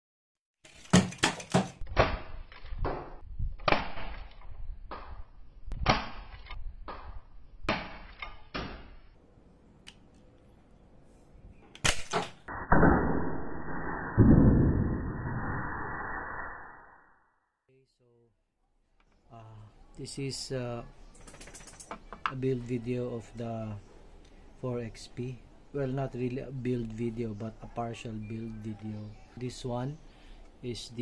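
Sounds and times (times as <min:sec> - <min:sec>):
muffled rushing noise: 0:12.5 - 0:17.2.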